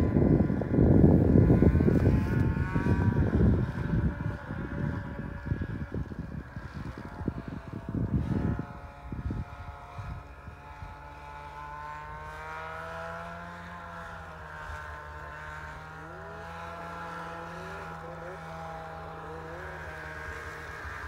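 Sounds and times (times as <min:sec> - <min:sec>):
wind buffeting microphone: 0:00.0 - 0:14.7
snowmobile engine running: 0:00.0 - 0:21.0.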